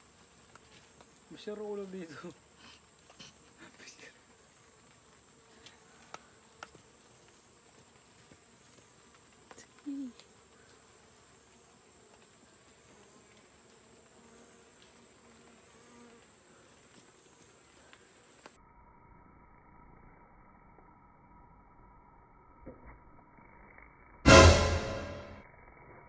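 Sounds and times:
bee flying close by: 2.4s - 18.5s.

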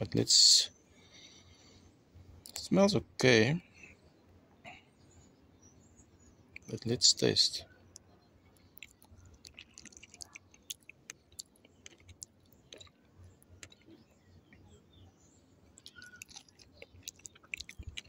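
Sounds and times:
mouth clicks: 7.9s - 14.6s, 15.8s - 18.0s
wet chewing: 8.0s - 14.6s, 15.7s - 18.0s.

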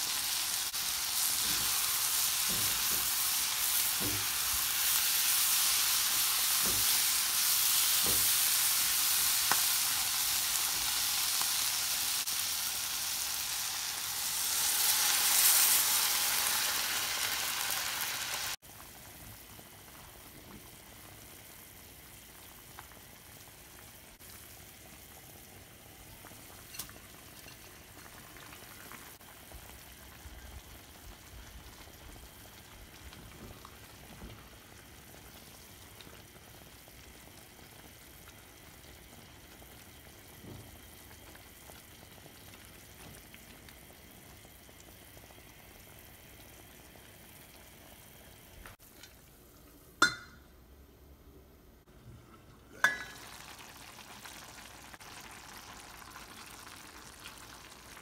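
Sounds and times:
pot simmering: 0.0s - 58.0s
spatula knocking in pot: 50.0s - 50.4s
water pouring into hot pan: 52.4s - 58.0s.

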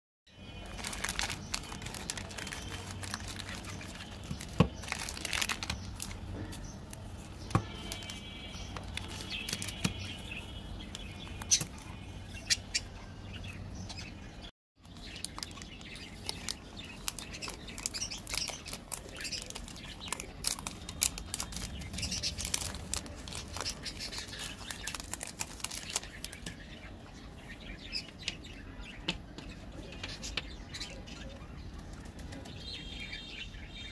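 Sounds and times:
wrappers crinkling and tearing: 0.5s - 11.9s, 14.9s - 26.6s.

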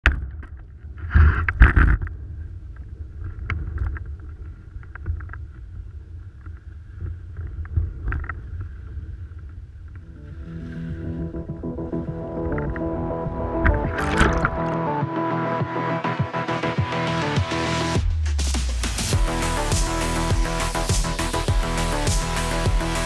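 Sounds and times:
music: 10.0s - 23.0s.

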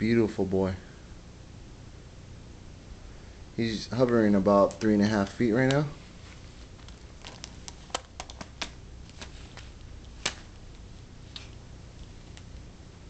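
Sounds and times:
sharp clicks and taps: 6.8s - 9.3s.

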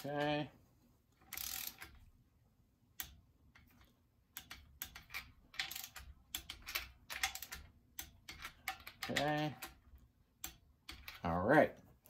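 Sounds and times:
socket wrench ratcheting: 1.2s - 2.0s, 3.0s - 11.3s.

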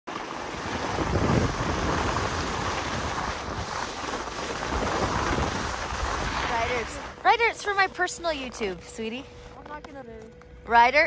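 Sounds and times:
skis sliding over packed snow: 0.1s - 10.2s
wind buffeting microphone: 0.4s - 8.6s.

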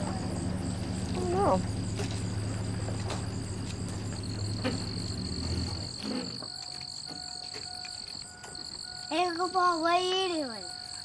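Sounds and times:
low hum: 0.0s - 6.8s
crickets chirping drone: 0.0s - 11.0s.

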